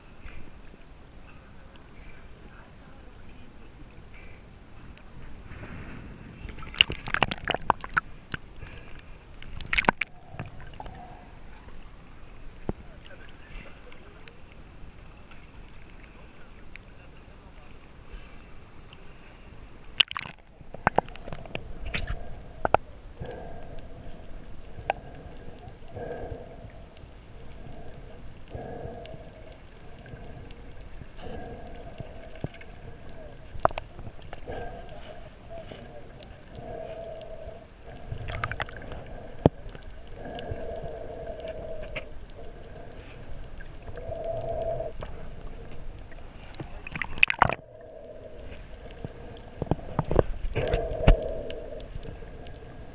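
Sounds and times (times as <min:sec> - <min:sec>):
water sloshing and splashing: 0:05.6 - 0:08.5, 0:09.4 - 0:14.2, 0:20.0 - 0:23.5, 0:28.6 - 0:51.5
underwater crackle of clicks: 0:06.5 - 0:16.9, 0:19.9 - 0:52.9.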